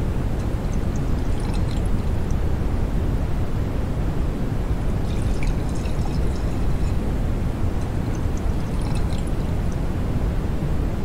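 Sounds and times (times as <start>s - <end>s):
beer fizzing in a glass: 0.7s - 2.2s, 5.0s - 7.0s, 8.0s - 9.8s.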